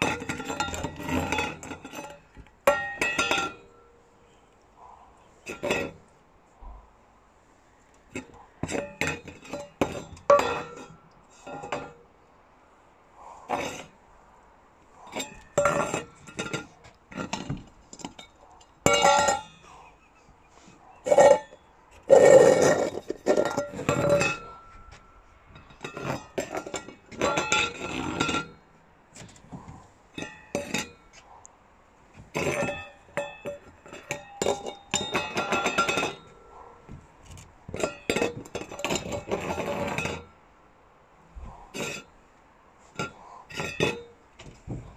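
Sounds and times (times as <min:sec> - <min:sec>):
metal bowl clinking and scraping: 0:00.0 - 0:03.9, 0:05.4 - 0:06.1, 0:08.1 - 0:12.1, 0:13.5 - 0:13.9, 0:15.0 - 0:19.7, 0:21.0 - 0:28.6, 0:30.2 - 0:31.0, 0:32.3 - 0:36.6, 0:37.7 - 0:40.4, 0:41.7 - 0:42.1, 0:42.9 - 0:44.2.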